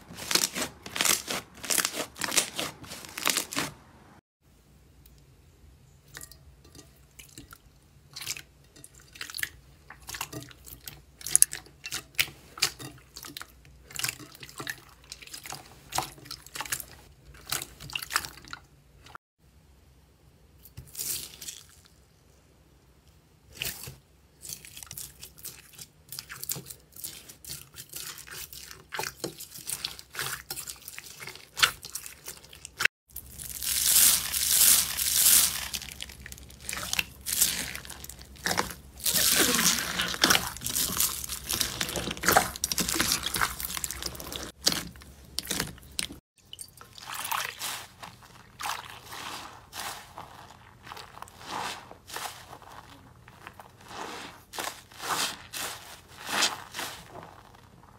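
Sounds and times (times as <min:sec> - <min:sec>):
foam bead slime crackling: 0:00.0 - 0:03.8, 0:29.6 - 0:46.2, 0:47.3 - 0:57.9
jelly beads squelching: 0:00.0 - 0:03.8, 0:23.5 - 0:57.9.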